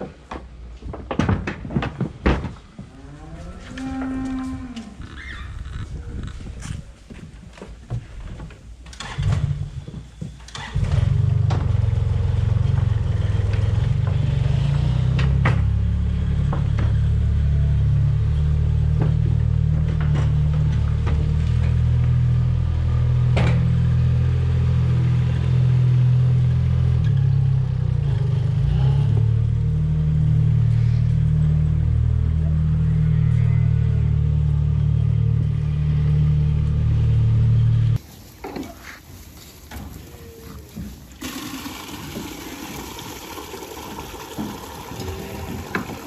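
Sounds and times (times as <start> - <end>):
loader engine droning: 9.0 - 38.0.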